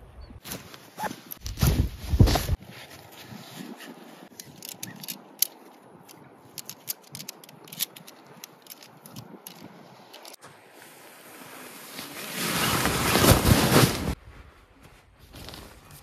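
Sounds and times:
tent pole sections clicking: 0:03.8 - 0:10.4.

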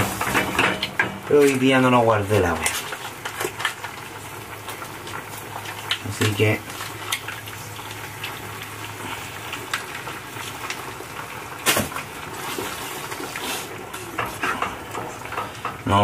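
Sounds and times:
water boiling and bubbling: 0:00.0 - 0:16.0.

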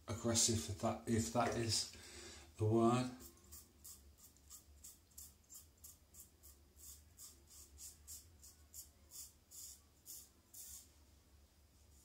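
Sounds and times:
razor scraping stubble: 0:03.2 - 0:10.8.

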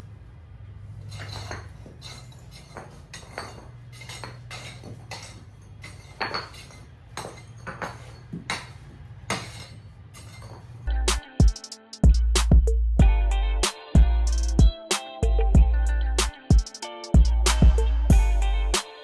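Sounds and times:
pavers clinking together: 0:01.1 - 0:10.9
hand tool striking pavers: 0:01.2 - 0:10.6.

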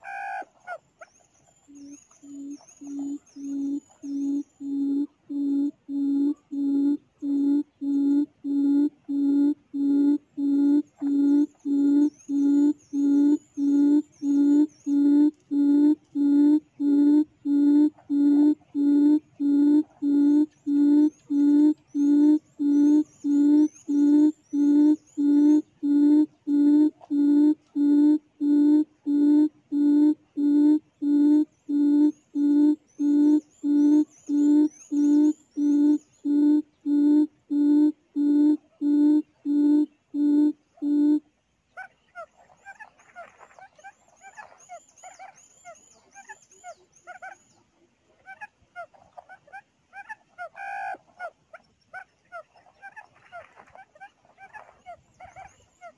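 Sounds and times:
quail call through speaker: 0:00.0 - 0:00.8, 0:48.1 - 0:55.9
bird calls: 0:00.0 - 0:41.2, 0:41.8 - 0:47.6, 0:48.3 - 0:55.9
small birds chirping: 0:00.0 - 0:49.3, 0:50.0 - 0:55.9.

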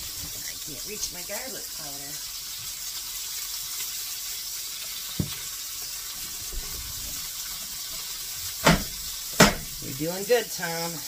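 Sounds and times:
patties sizzling in a skillet: 0:00.0 - 0:11.0
short knock: 0:08.6 - 0:09.7.

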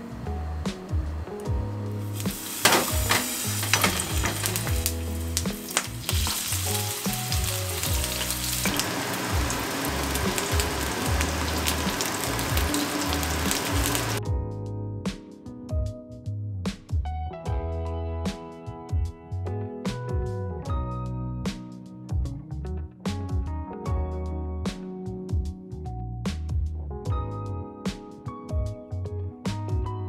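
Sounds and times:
soft background music with bass: 0:00.0 - 0:30.0
eggplant sizzling in oil: 0:02.1 - 0:14.2.

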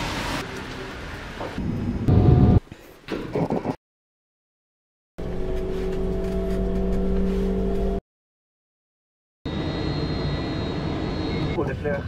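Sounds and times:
vehicle engine drone: 0:09.5 - 0:12.0.

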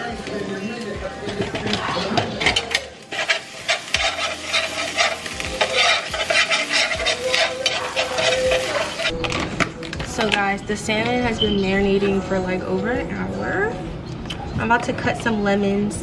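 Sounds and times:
meat sizzling in a frying pan: 0:00.0 - 0:09.1
utensil scraping a pan: 0:01.2 - 0:09.2.

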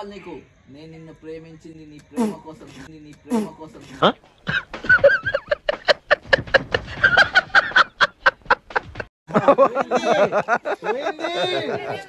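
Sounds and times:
voices talking: 0:00.0 - 0:04.4, 0:09.4 - 0:12.0.

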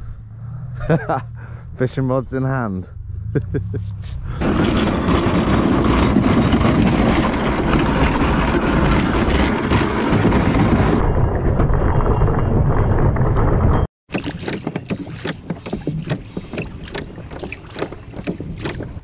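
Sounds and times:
boat hull dragged over stone: 0:04.3 - 0:11.0, 0:13.7 - 0:19.0.

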